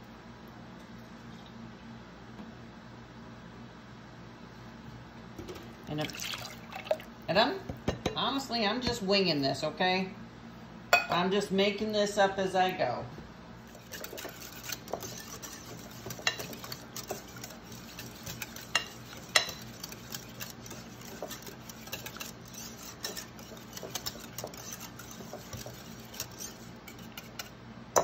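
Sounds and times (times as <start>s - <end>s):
whisk stirring thick liquid: 6.0s - 7.1s, 13.6s - 28.0s
whisk clicking on glass bowl: 13.6s - 28.0s.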